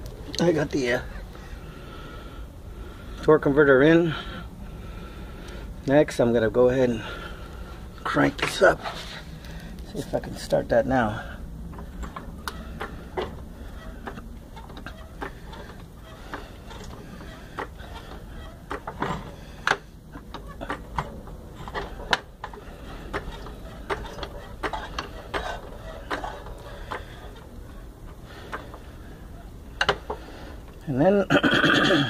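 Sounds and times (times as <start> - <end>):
low steady hum: 0.0 - 32.0
jack metallic clicks and clunks: 11.7 - 28.8, 29.7 - 30.8.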